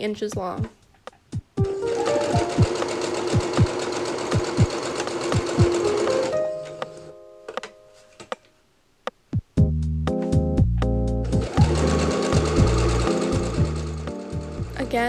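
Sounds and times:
sewing machine stitching: 1.8s - 6.3s, 11.2s - 14.7s.

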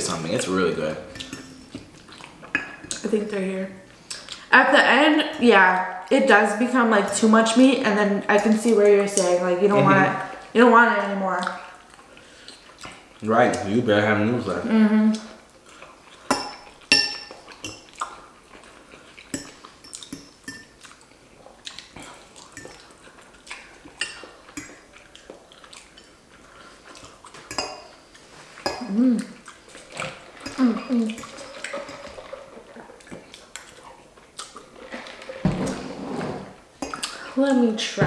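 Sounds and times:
metal forks clinking against bowls: 1.1s - 1.8s, 16.3s - 17.9s, 27.5s - 27.9s, 30.4s - 32.3s.

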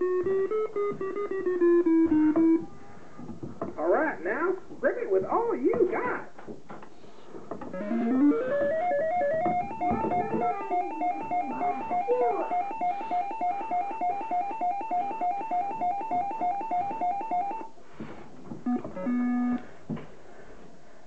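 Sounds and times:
fast two-note electronic beeping: 7.8s - 17.7s.

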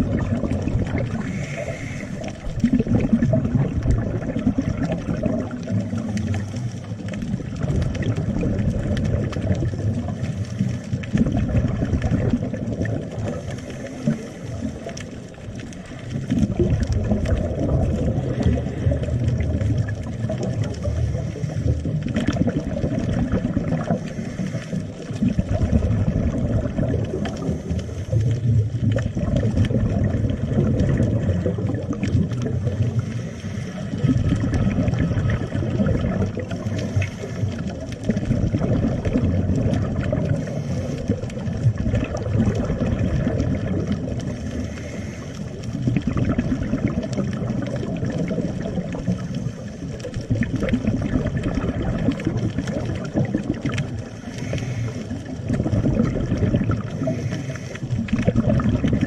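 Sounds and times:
underwater bubbles rushing: 0.0s - 59.0s
diver breathing through regulator: 0.2s - 3.0s, 13.1s - 17.4s, 18.0s - 19.4s, 20.6s - 22.3s, 23.8s - 25.7s, 27.2s - 28.4s, 32.6s - 35.1s, 36.3s - 38.0s, 39.5s - 42.2s, 44.3s - 45.8s, 49.0s - 50.1s, 53.9s - 58.4s.

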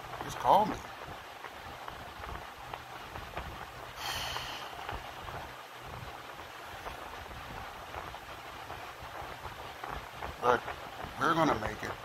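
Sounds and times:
man exhaling through nose: 4.0s - 4.8s.

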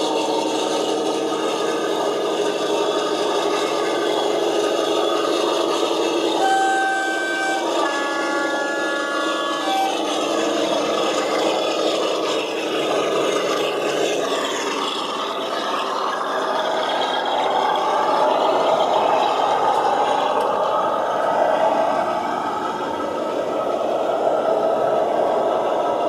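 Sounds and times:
model train motor whirring: 0.0s - 26.0s
wheels rattling on rails: 0.0s - 26.0s
two-tone locomotive horn: 4.9s - 12.3s.

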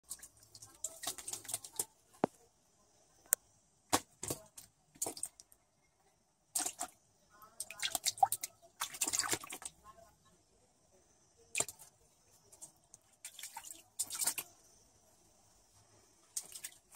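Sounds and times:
paw splashing water: 7.6s - 9.8s, 13.2s - 14.5s.

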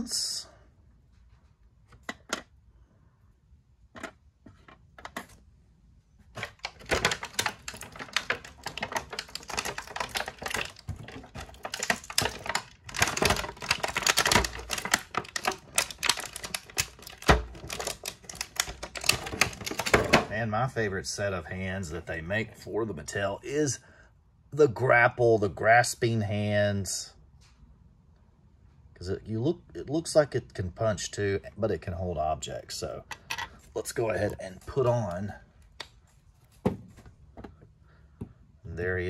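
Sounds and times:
plastic packaging crinkling: 6.3s - 20.4s.

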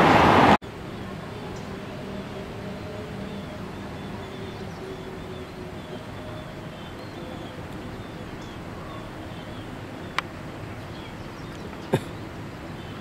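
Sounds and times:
faint bird chirps: 2.8s - 10.2s.

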